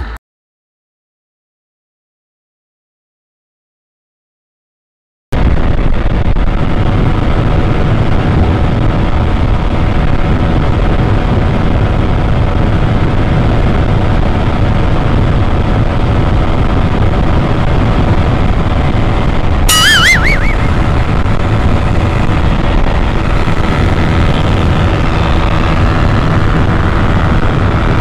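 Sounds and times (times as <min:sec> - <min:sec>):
motorcycle engine at full speed: 0:05.4 - 0:28.0
wind rush on microphone: 0:05.4 - 0:28.0.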